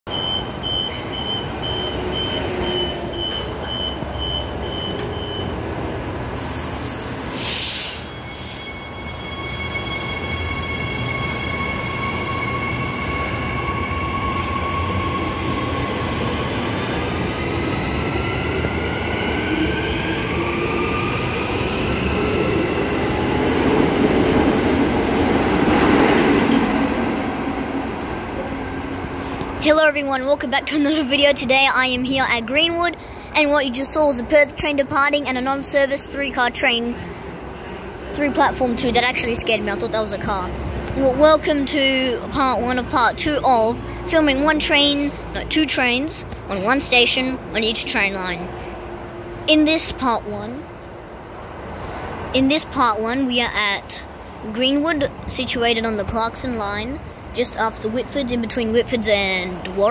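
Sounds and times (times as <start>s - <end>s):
train beeps: 0.1s - 5.6s, 7.0s - 16.0s
passing train rumble: 0.1s - 59.9s
short sharp hiss: 6.4s - 8.8s.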